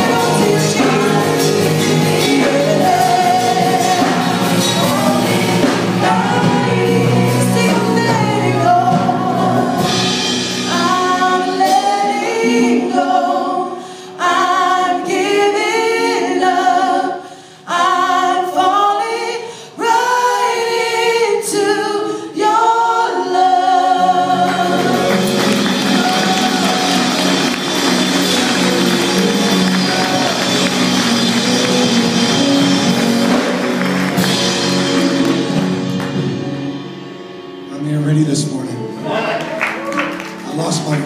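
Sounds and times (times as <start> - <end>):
keyboard and bass: 0.0 - 13.6, 23.2 - 41.0
gospel group singing: 0.0 - 36.8
hand clapping: 25.1 - 32.2.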